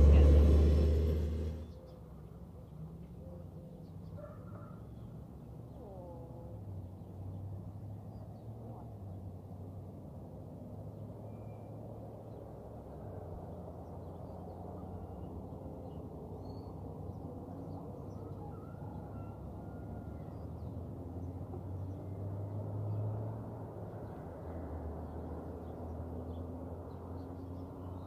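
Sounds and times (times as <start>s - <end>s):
steady low rumble: 0.0s - 1.6s
faint bird chirps: 11.0s - 11.9s.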